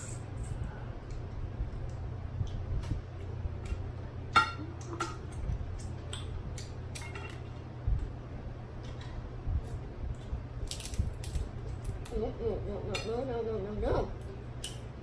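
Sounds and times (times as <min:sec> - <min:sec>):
steady low hum: 0:00.0 - 0:15.0
crab shells cracking and clicking: 0:10.6 - 0:12.2.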